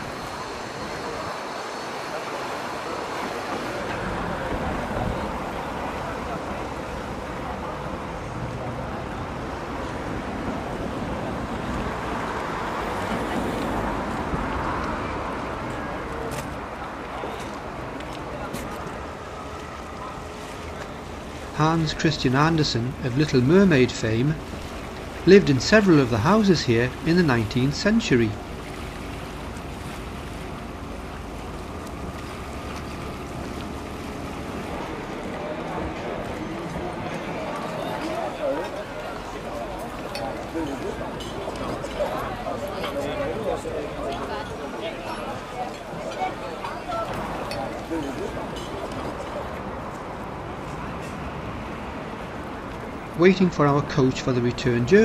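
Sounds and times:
outdoor noise: 0.0 - 55.0.

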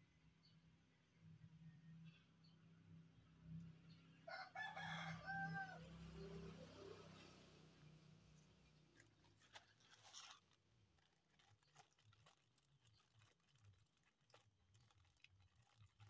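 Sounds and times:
plastic packet crinkling: 8.9 - 16.0.

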